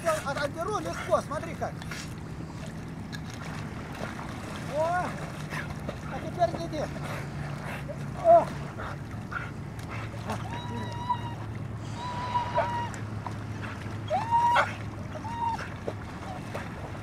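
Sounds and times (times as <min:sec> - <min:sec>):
water splashing: 0:00.0 - 0:17.0
dog whining: 0:12.0 - 0:13.0, 0:14.1 - 0:15.7.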